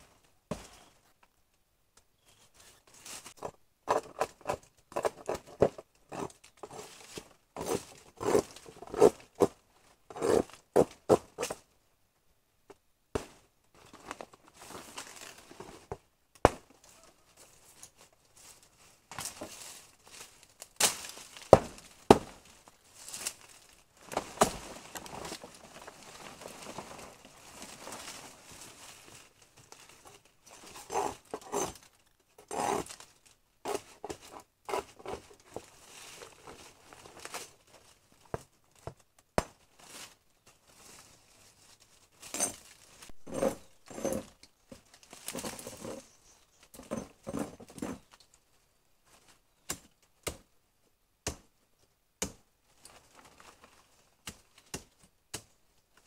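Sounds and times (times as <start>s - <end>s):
crinkling tearing rustles: 16.8s - 33.4s.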